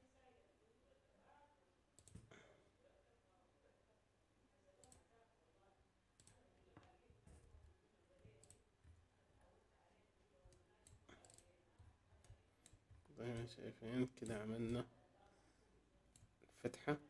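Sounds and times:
computer mouse clicks: 0:02.0 - 0:02.3, 0:04.8 - 0:05.1, 0:06.2 - 0:07.4, 0:08.3 - 0:09.0, 0:10.5 - 0:13.5.

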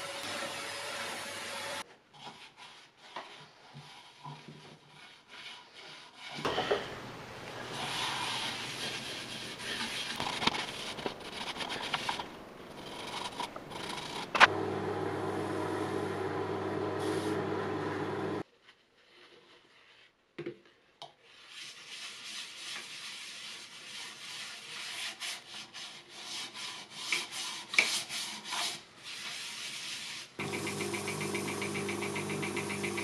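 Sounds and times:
cloth rubbing wood: 0:03.8 - 0:14.5
lathe motor humming: 0:07.4 - 0:18.4, 0:30.4 - 0:33.0
drill sanding pad humming: 0:13.7 - 0:18.4, 0:30.4 - 0:33.0.

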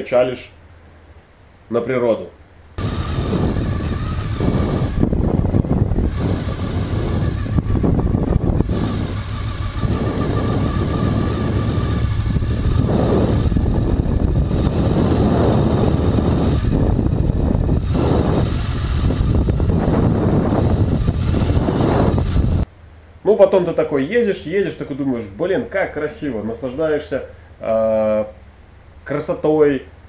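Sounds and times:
motorcycle engine running: 0:02.8 - 0:22.6
wind noise: 0:02.8 - 0:22.7.

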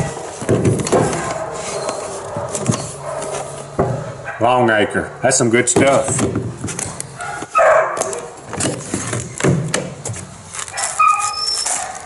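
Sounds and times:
scrape: 0:01.5 - 0:03.6.

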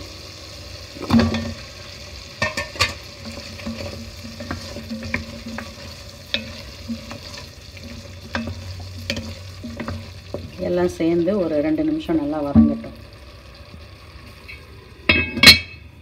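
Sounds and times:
vegetables sizzling in pan: 0:00.0 - 0:16.0
spoon knocking and scraping pan: 0:01.0 - 0:01.8, 0:02.4 - 0:10.8, 0:12.5 - 0:13.0.

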